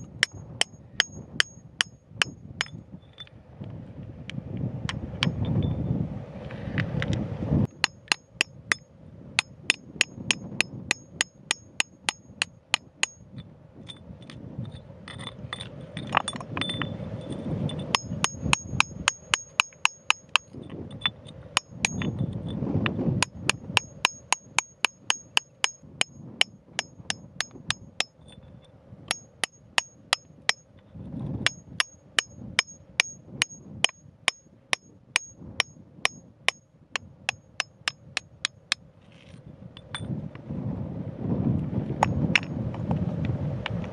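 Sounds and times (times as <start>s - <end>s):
gravel scraping: 6.3s - 7.6s, 39.0s - 40.4s
steel tool striking gravelly ground: 7.7s - 28.4s, 29.1s - 30.7s, 31.4s - 38.8s.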